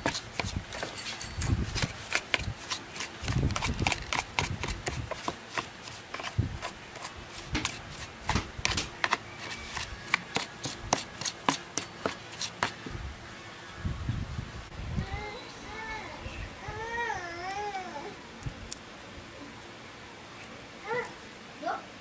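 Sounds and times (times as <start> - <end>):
brush scrubbing plastic: 0.0 - 12.8.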